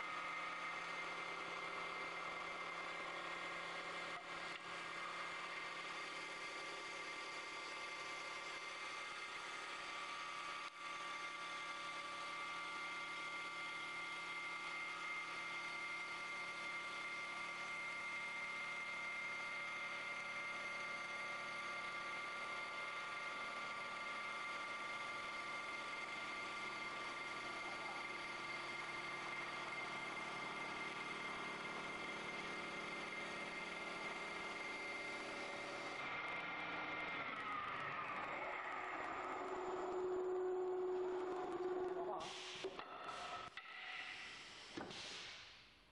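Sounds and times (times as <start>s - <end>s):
lathe high whine: 0.0s - 44.9s
hiss of wood being cut: 42.2s - 45.7s.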